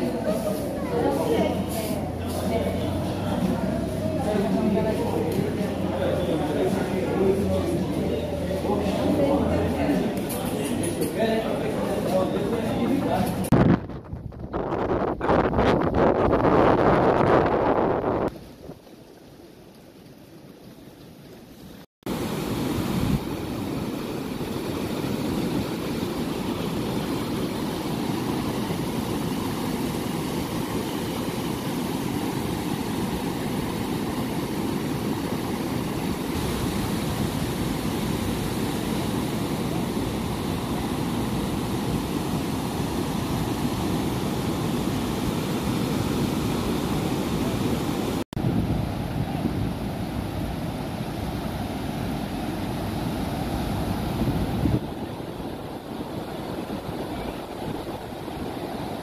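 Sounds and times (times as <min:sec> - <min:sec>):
surf washing onto beach: 0:00.0 - 0:59.0
wind buffeting microphone: 0:12.6 - 0:18.8, 0:48.4 - 0:50.5, 0:52.8 - 0:59.0.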